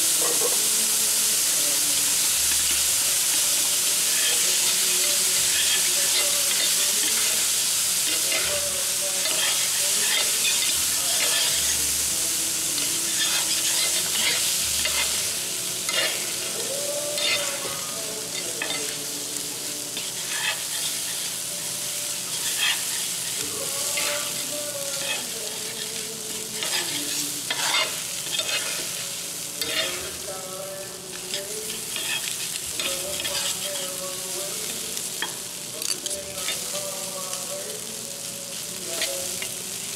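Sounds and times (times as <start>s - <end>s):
rice sizzling on a griddle: 0.0s - 39.9s
metal spatulas scraping a griddle: 4.1s - 11.8s, 12.8s - 16.5s, 17.1s - 19.0s, 20.0s - 21.3s, 22.3s - 26.0s, 26.6s - 29.0s, 29.6s - 30.2s, 31.1s - 34.0s.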